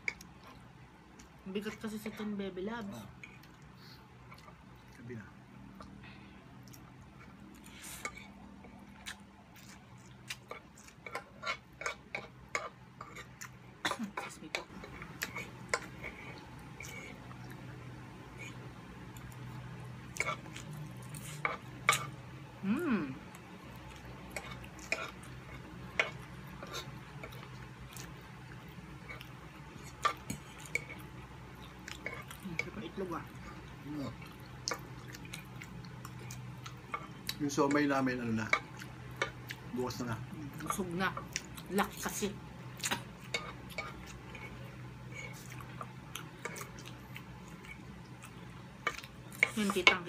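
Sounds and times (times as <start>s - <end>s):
low steady hum: 0.0s - 50.0s
wet chewing: 6.6s - 13.6s, 23.3s - 37.8s, 42.7s - 50.0s.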